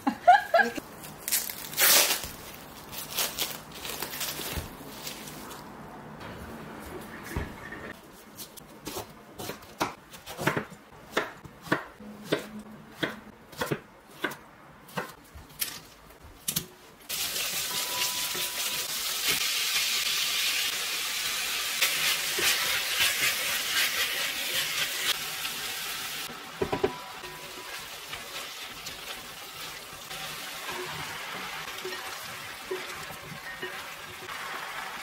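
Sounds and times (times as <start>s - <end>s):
knife chopping on cutting board: 8.8s - 15.2s
food sizzling in a hot pan: 17.1s - 35.0s.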